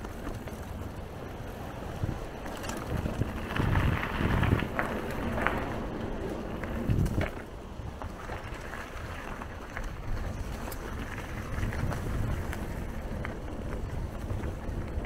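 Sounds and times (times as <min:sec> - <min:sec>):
tyres rumbling over rough trail: 0:00.0 - 0:15.0
wind buffeting microphone: 0:00.0 - 0:15.0
small clicks and rattles: 0:02.4 - 0:07.4.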